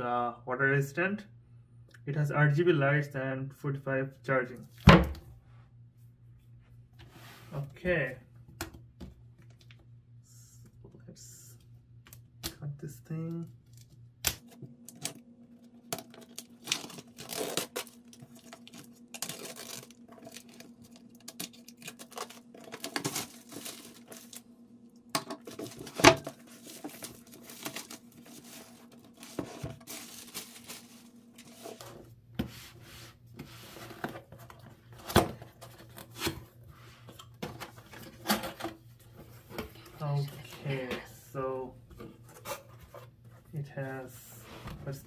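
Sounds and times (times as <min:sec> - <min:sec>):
shrink wrap tearing and crinkling: 0:13.6 - 0:24.5, 0:25.4 - 0:31.7.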